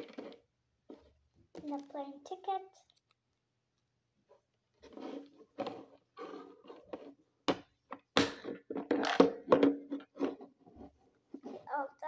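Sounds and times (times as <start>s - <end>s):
plastic pieces knocking: 7.5s - 10.6s.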